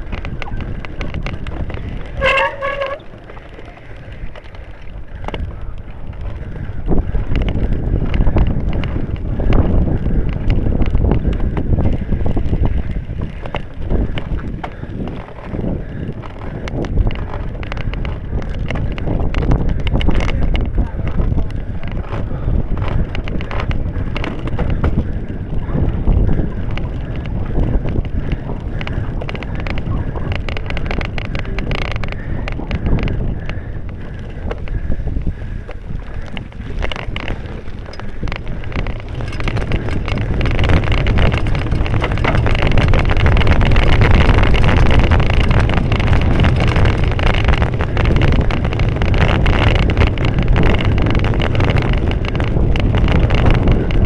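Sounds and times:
bike knocks and rattles: 0.0 - 54.0
wind buffeting microphone: 0.0 - 54.0.

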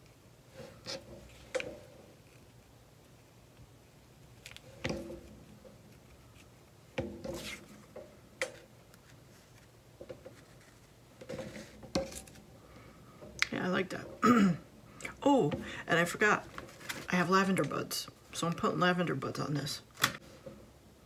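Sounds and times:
paper and card handling: 16.5 - 17.2.

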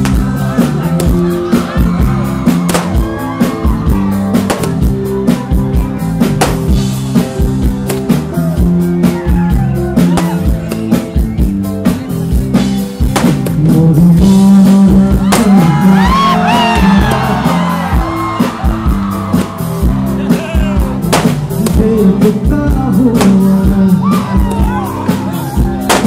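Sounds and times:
bass line: 0.0 - 26.0
drum kit beating: 0.0 - 26.0
guitar: 0.0 - 26.0
person singing: 13.4 - 17.6, 21.5 - 25.7.

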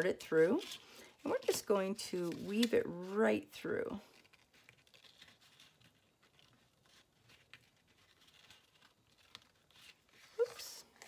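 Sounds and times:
cardstock and ribbon rustling: 0.0 - 11.0.

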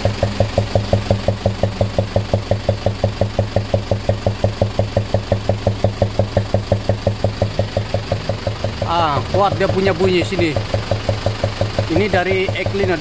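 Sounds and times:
diesel engine idling with knock: 0.0 - 13.0.

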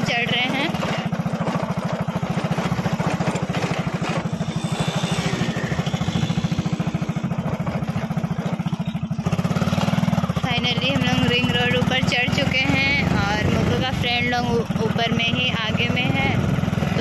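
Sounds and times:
motorcycle engine running: 0.0 - 17.0
wind noise on microphone: 12.7 - 14.6.

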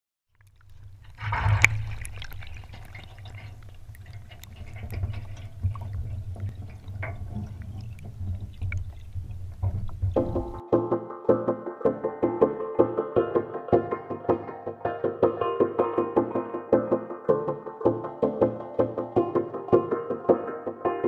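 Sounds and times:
water swirling: 0.3 - 10.6
continuous low hum: 0.4 - 10.6
watery rush: 0.4 - 10.6
music: 10.1 - 21.0.

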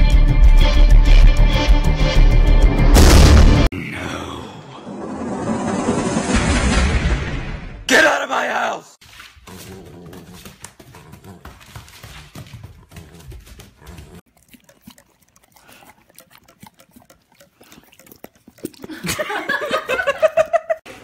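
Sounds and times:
person speaking: 7.9 - 9.0
dog growling: 9.4 - 11.9, 12.6 - 19.1.

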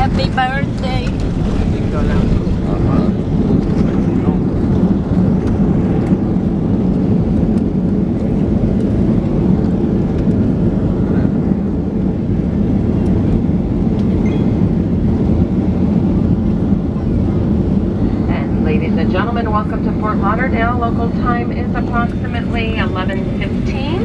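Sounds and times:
landing gear rumbling on pavement: 0.0 - 6.2
aircraft engine noise: 0.0 - 24.0.

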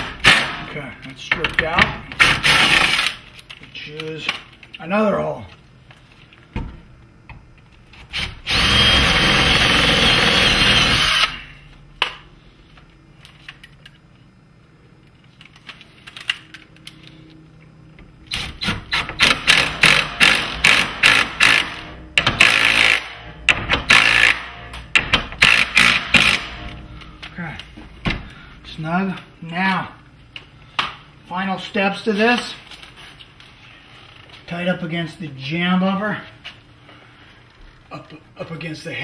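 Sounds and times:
cordless drill whining: 8.2 - 11.4.

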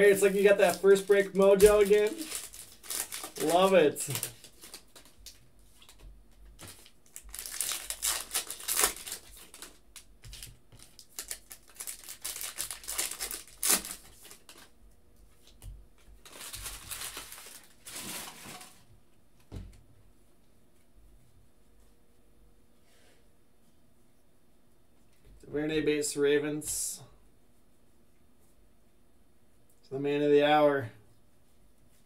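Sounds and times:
foil wrapper tearing and crinkling: 0.3 - 6.0, 6.6 - 14.7, 16.2 - 18.8.

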